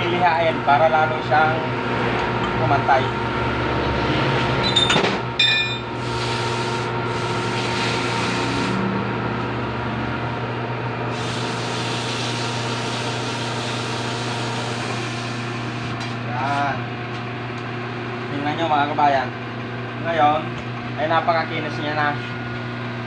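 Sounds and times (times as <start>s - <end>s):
metal lathe motor hum: 0.0s - 16.2s.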